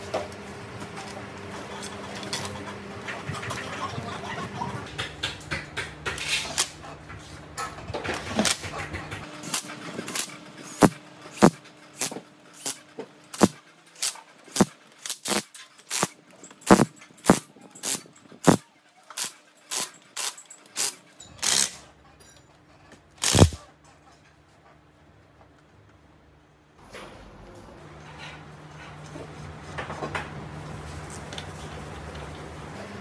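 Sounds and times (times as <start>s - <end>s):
cordless power driver bursts: 14.6s - 16.1s, 16.7s - 18.6s, 23.2s - 23.6s.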